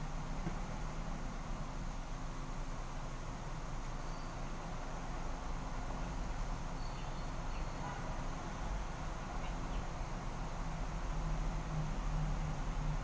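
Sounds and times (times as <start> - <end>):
low background hum and hiss: 0.0 - 13.0
faint high chirps: 4.0 - 4.5.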